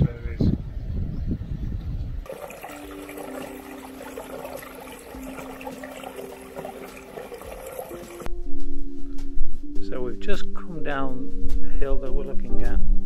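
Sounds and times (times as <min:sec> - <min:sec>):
stream babbling over rocks: 0:02.3 - 0:08.3
soft sustained music notes: 0:02.3 - 0:13.0.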